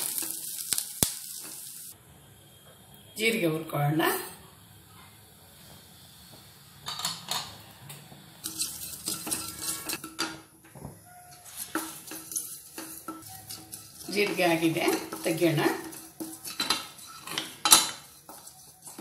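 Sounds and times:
wooden spatula scraping metal pan: 0:08.4 - 0:10.2, 0:11.1 - 0:19.0.

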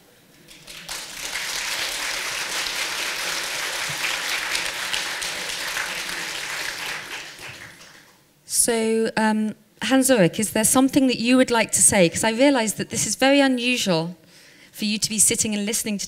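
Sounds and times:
audience applauding: 0:00.4 - 0:08.2.

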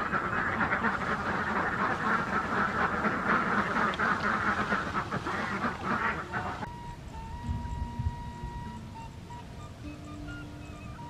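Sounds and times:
ducks quacking: 0:00.0 - 0:11.0.

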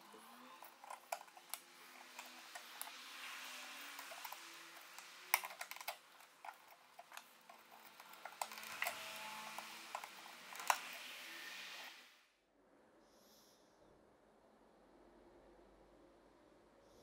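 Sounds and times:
wooden strips clicking into lattice: 0:03.7 - 0:11.0.

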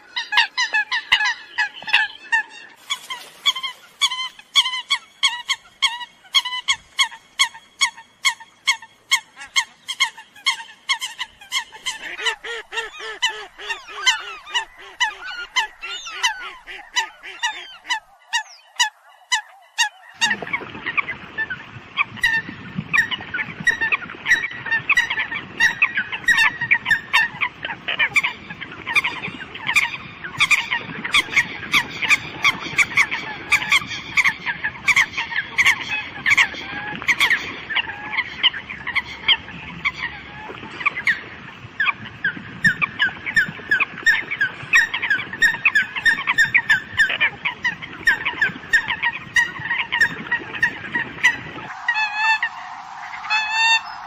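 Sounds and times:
flock of coots calling: 0:00.0 - 0:54.0.

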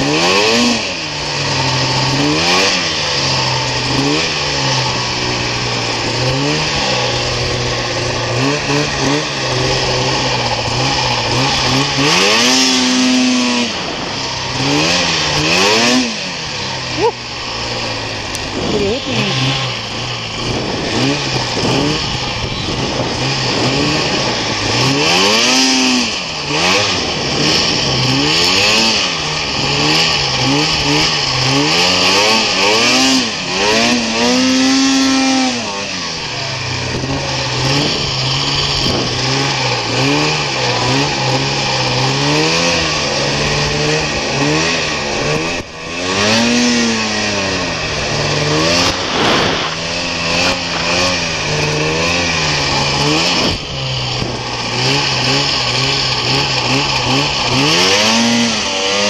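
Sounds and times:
snowmobile engine revving: 0:00.0 - 0:59.0
steady rushing hiss: 0:47.2 - 0:54.8.

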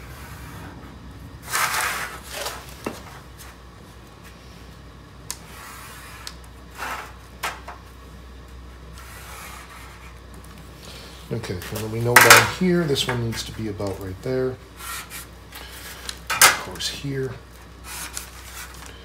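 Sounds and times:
marker scratching on metal: 0:09.0 - 0:10.2, 0:14.8 - 0:15.3.

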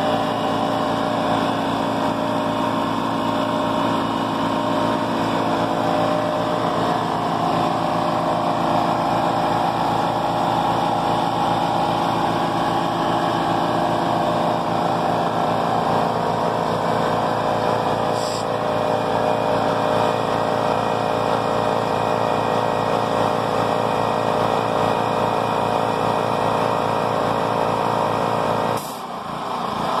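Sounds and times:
portable generator running: 0:00.0 - 0:30.0
air compressor pumping: 0:13.3 - 0:21.8, 0:28.7 - 0:29.2
air hiss: 0:18.2 - 0:18.5.

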